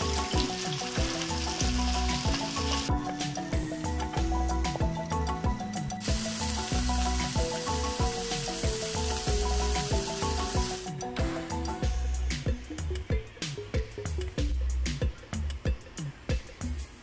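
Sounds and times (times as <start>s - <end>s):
peas sizzling in hot oil: 0.0s - 2.9s, 6.0s - 11.0s
background music with steady beat: 0.0s - 17.0s.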